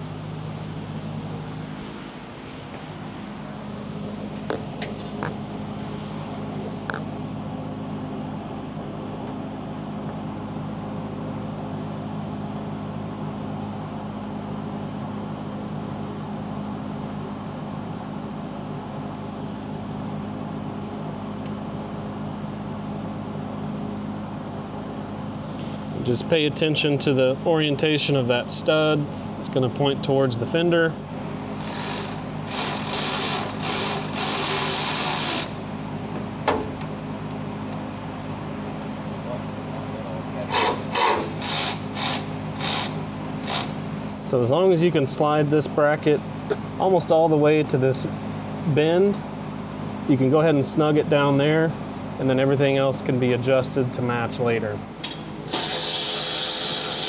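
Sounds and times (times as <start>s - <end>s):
low mechanical hum: 0.0s - 57.0s
ratchet wrench buzzing: 31.5s - 35.6s, 40.5s - 43.8s, 55.5s - 57.0s
ratchet wrench click: 40.6s - 43.8s, 55.0s - 57.0s.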